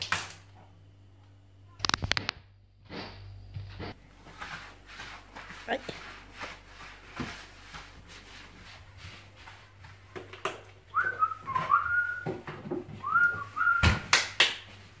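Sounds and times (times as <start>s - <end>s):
person whistling a tune: 10.9s - 12.4s, 13.0s - 14.0s.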